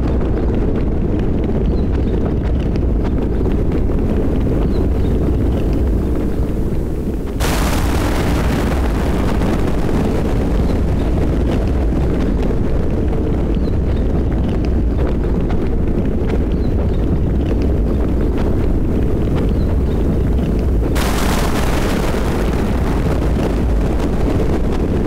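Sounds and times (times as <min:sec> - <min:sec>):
steady rain: 0:02.2 - 0:25.0
thunder clap rolling: 0:04.2 - 0:16.4, 0:17.9 - 0:25.0.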